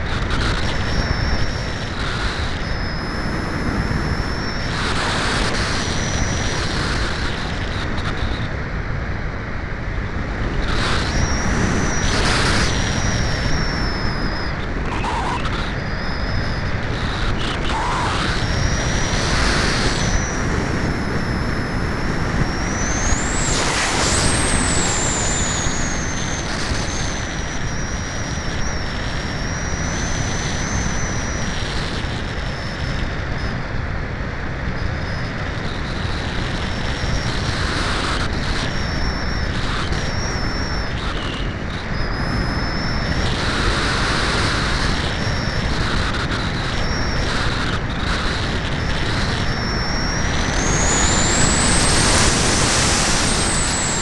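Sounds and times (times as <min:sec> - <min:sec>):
thin high wavering whine: 0:00.0 - 0:54.0
wind rushing: 0:50.3 - 0:54.0.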